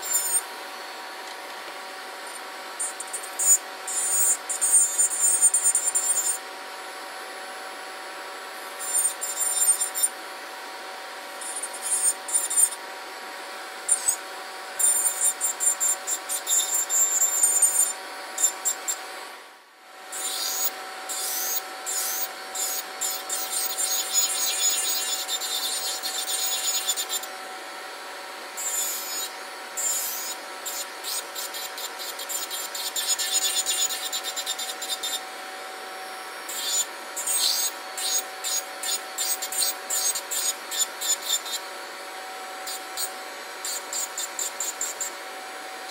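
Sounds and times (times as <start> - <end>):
nail file grinding: 0.0 - 0.5, 2.2 - 6.4, 8.8 - 10.2, 11.4 - 12.8, 13.8 - 19.0, 20.1 - 27.3, 28.6 - 35.3, 36.5 - 41.7, 42.6 - 45.2
dust collector fan humming: 0.0 - 45.9.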